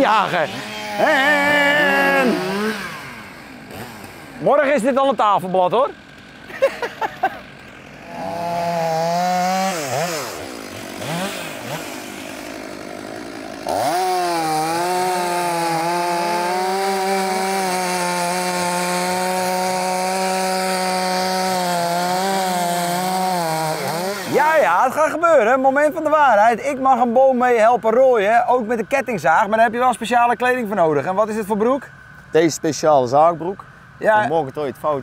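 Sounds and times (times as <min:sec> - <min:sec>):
chainsaw cutting wood: 0:00.0 - 0:25.1.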